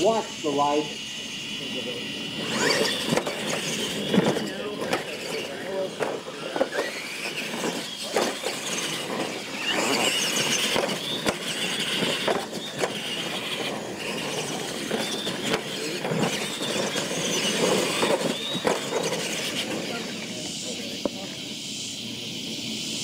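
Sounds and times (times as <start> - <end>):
electric motor whine: 0.0 - 23.0
toy trucks knocking and clattering: 2.4 - 21.2.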